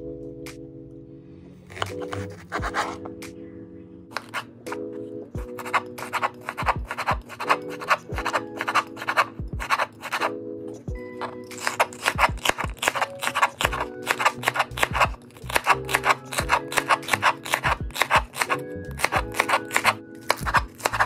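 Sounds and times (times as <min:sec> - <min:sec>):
soft background music: 0:00.0 - 0:21.0
knife slicing celery: 0:04.2 - 0:04.4, 0:05.5 - 0:10.3, 0:11.5 - 0:21.0.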